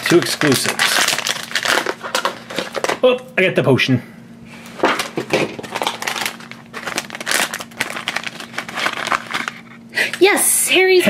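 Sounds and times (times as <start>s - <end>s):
foil packet crinkling: 0.0s - 3.0s, 4.8s - 10.4s.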